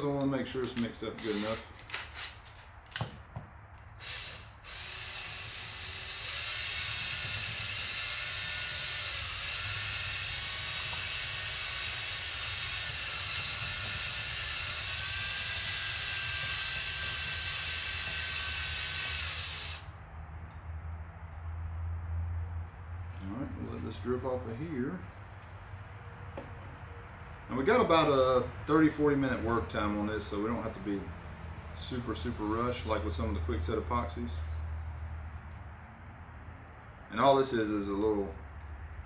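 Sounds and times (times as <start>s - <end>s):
electric drill whining: 1.2s - 2.4s, 3.8s - 19.9s.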